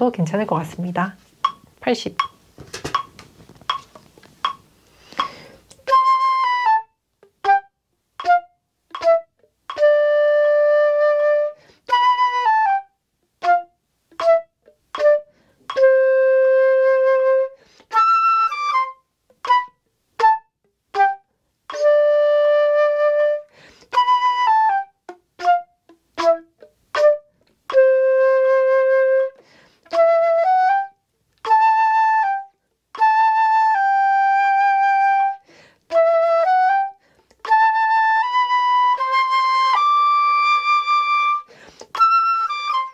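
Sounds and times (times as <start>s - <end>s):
flute playing slow melody: 5.8s - 42.9s
breaths between phrases: 35.4s - 35.8s.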